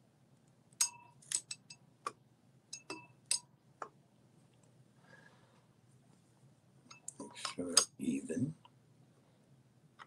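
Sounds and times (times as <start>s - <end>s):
metal clicking against glass beakers: 0.8s - 1.8s, 2.7s - 3.5s.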